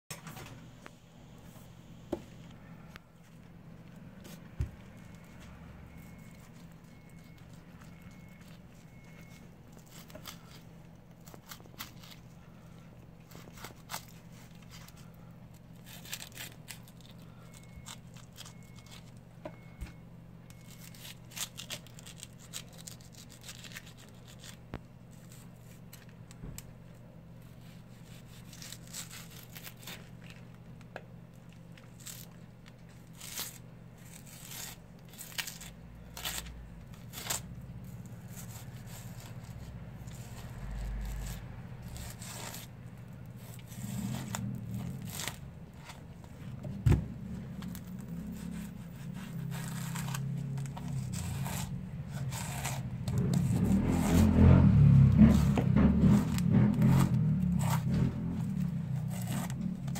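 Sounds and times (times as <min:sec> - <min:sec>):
low hum: 0:00.3 - 0:59.9
knife scraping through fish: 0:27.4 - 0:30.1, 0:38.2 - 0:42.7, 0:47.8 - 0:54.4, 0:55.3 - 0:59.9.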